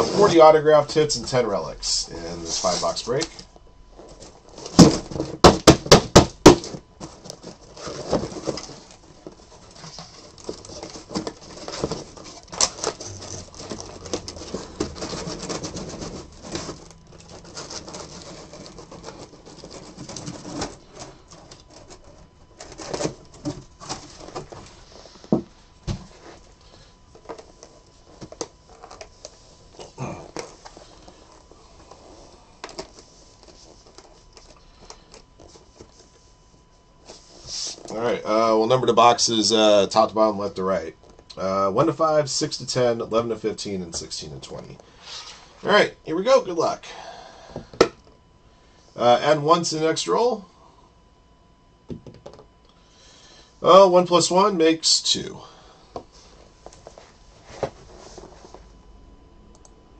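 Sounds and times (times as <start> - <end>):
boxes rustling and scraping: 0.0 - 50.5, 55.2 - 58.8
knocks on cardboard boxes: 4.7 - 7.2, 51.9 - 52.4.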